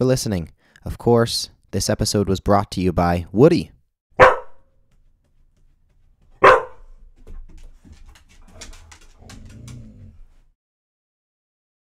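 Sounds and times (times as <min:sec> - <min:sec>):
dog barking: 0:04.2 - 0:04.7, 0:06.4 - 0:06.9
rustling: 0:04.9 - 0:10.5.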